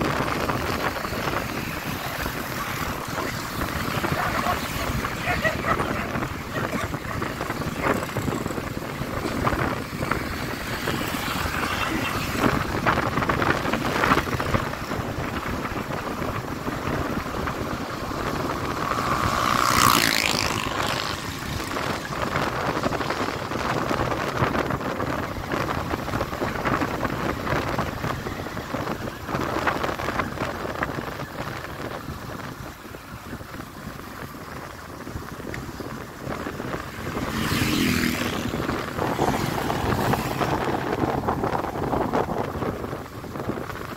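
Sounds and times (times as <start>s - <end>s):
motorcycle engine: 0.0s - 43.9s
wind rushing over microphone: 0.0s - 43.9s.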